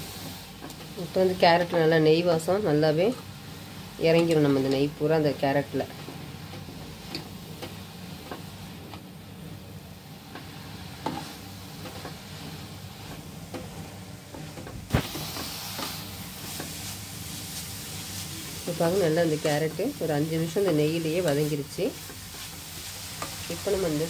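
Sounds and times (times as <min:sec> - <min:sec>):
carrot sizzling in fat: 0:00.0 - 0:24.0
spoon scraping and knocking pan: 0:10.3 - 0:16.9.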